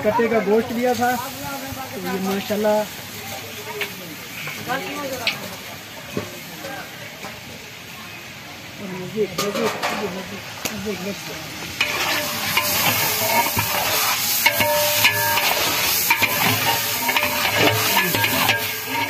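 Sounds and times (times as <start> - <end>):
meat sizzling in a pot: 0.0 - 19.0
ladle scraping a pot: 11.8 - 19.0.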